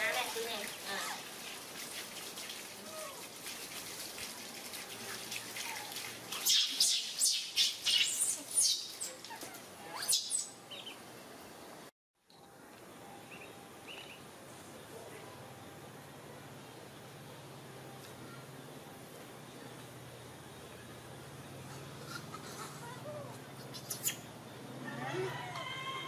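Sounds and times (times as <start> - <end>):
water pouring from hose: 0.0 - 8.8.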